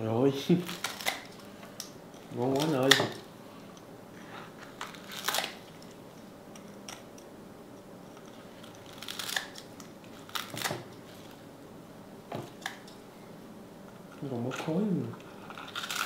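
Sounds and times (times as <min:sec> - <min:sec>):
crunching crispy fried skin: 0:00.5 - 0:03.2, 0:04.6 - 0:07.1, 0:08.1 - 0:11.4, 0:14.4 - 0:16.0.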